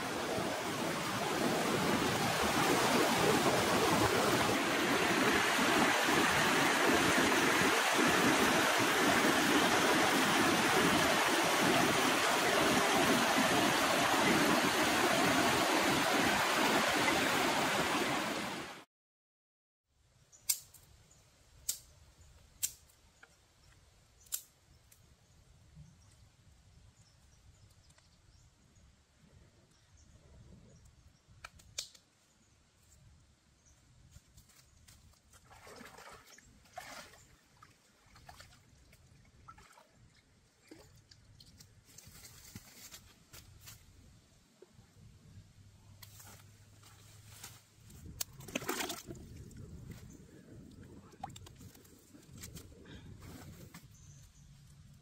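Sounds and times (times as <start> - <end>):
stream water rushing: 0.0 - 18.8.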